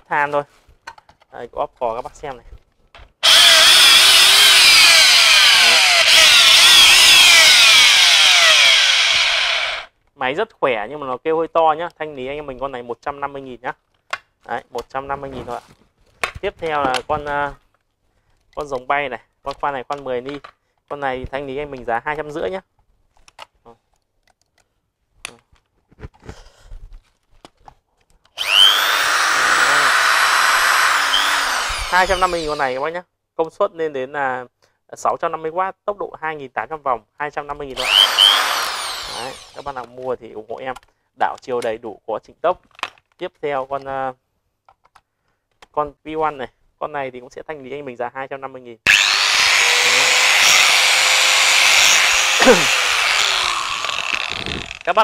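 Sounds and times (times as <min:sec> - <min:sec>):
electric drill whining: 0:03.2 - 0:09.9, 0:28.4 - 0:32.8, 0:37.8 - 0:39.8, 0:48.9 - 0:54.9.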